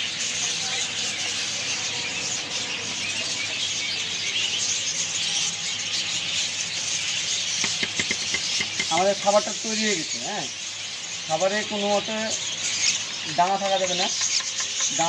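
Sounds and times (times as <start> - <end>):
steady background hiss: 8.3 - 15.0.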